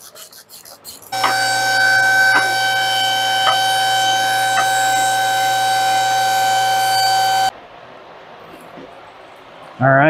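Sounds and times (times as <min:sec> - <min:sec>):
hydraulic pump motor whine: 0:01.2 - 0:07.5.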